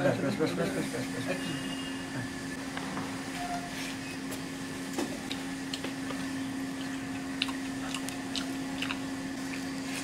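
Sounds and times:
steady low hum: 0.0s - 10.0s
clicks and taps of eating: 5.0s - 9.6s.

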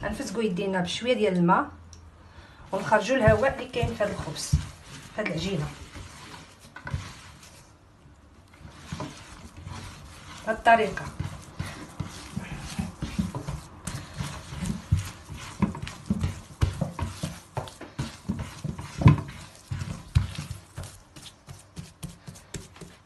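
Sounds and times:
hands slapping bread dough: 8.7s - 23.0s.

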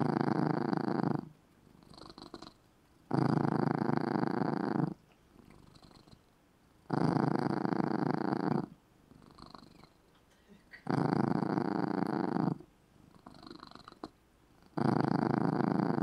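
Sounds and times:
cat purring loudly: 0.0s - 10.0s, 10.8s - 16.0s.

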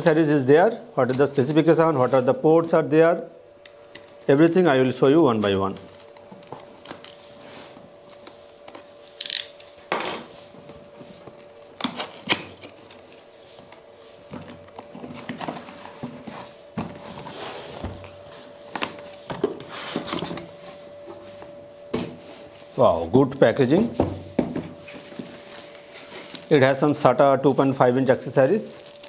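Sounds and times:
faint steady hum: 0.0s - 29.0s
cardboard box being unpacked: 24.9s - 26.5s.

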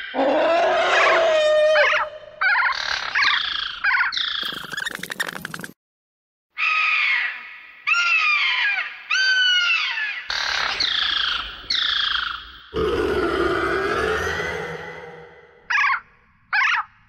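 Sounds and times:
creature roar: 0.0s - 2.1s, 12.8s - 15.6s
creature screeching cries: 0.0s - 2.7s, 12.8s - 16.0s.

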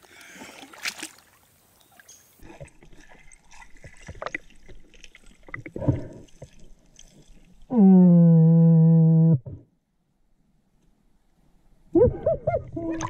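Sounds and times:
water sloshing and splashing: 0.0s - 7.7s
gravel clicking underwater: 2.4s - 7.7s.

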